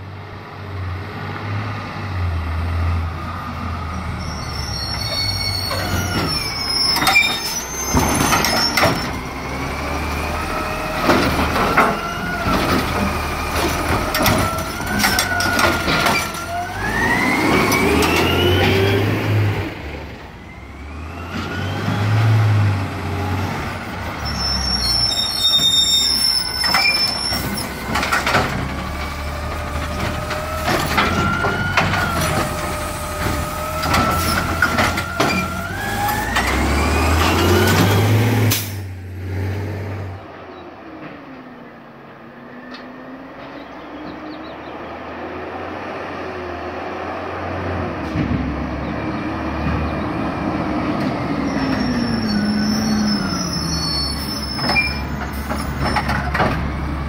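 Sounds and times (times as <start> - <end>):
clanks and knocks: 11.0 - 16.6, 26.6 - 35.6, 54.6 - 56.7
garbage truck engine running: 25.4 - 39.2.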